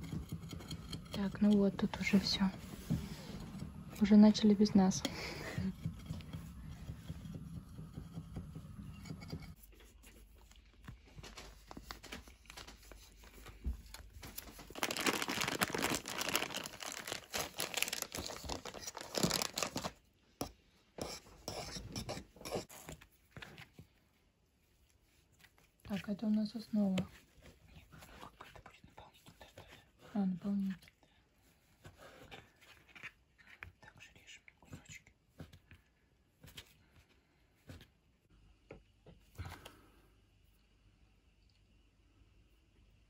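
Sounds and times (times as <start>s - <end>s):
knife cutting sponge cake: 0.0s - 9.8s
sponge cake tearing and crumbling: 14.4s - 20.0s.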